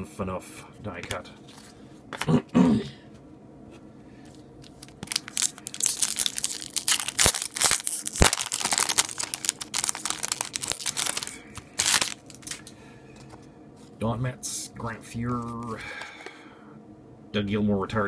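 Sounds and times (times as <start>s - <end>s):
foil wrapper crinkling and tearing: 4.6s - 12.7s.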